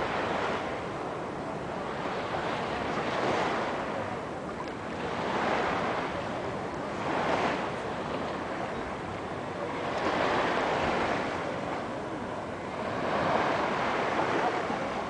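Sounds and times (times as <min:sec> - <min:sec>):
small sea waves lapping: 0:00.0 - 0:15.0.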